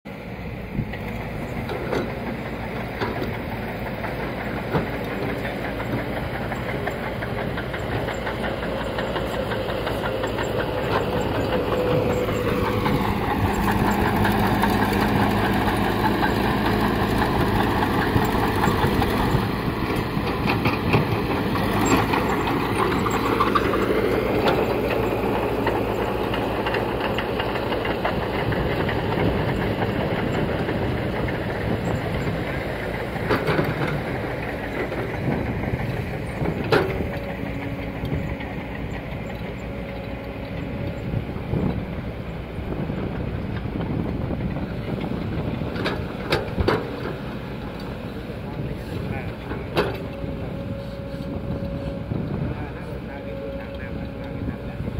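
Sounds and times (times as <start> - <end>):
bulldozer engine and tracks: 0.1 - 54.9
excavator diesel engine: 0.1 - 54.9.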